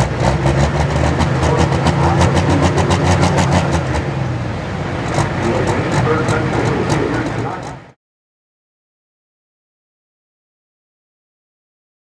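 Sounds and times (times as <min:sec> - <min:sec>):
tractor diesel engine running: 0:00.0 - 0:08.0.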